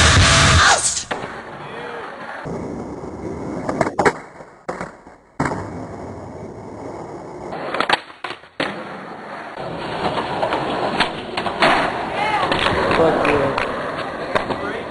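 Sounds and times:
skateboard wheels rolling on concrete: 0:00.0 - 0:14.9
skateboard clacks: 0:07.5 - 0:08.9, 0:09.6 - 0:14.9.

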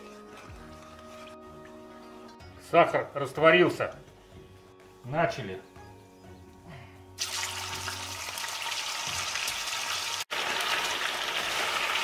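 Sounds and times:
pork sizzling in hot oil: 0:07.2 - 0:12.0.

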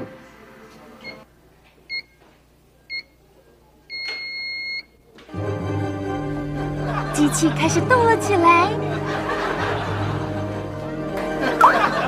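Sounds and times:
treadmill control panel beeps: 0:01.9 - 0:02.2, 0:02.9 - 0:03.1, 0:03.9 - 0:04.9.

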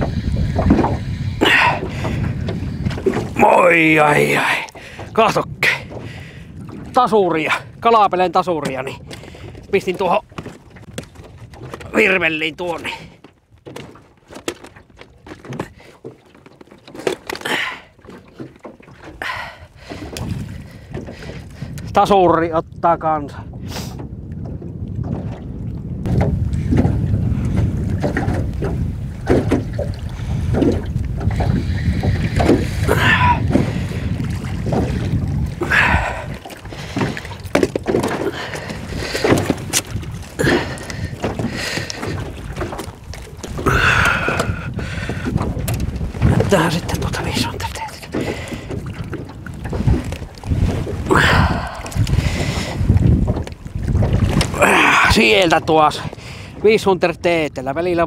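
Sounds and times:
low wind rumble on microphone: 0:00.0 - 0:13.9, 0:18.5 - 0:58.0
knocks and clicks in boat: 0:00.0 - 0:58.0
fishing gear clicks and knocks: 0:13.2 - 0:19.3, 0:35.8 - 0:44.6.

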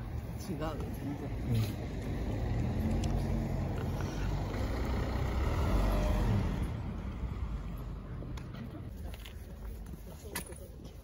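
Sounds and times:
vehicle driving past: 0:01.3 - 0:08.2.

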